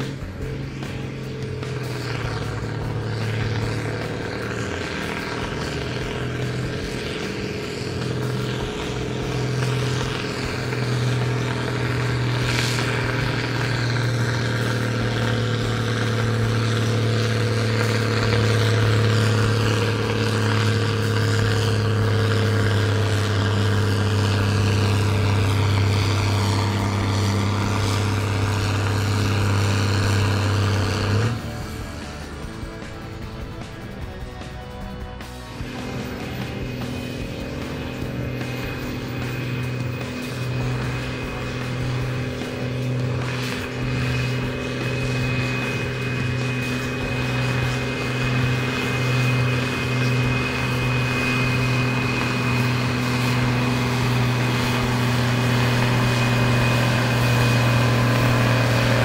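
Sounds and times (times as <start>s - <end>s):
tractor diesel engine droning: 0.0s - 59.0s.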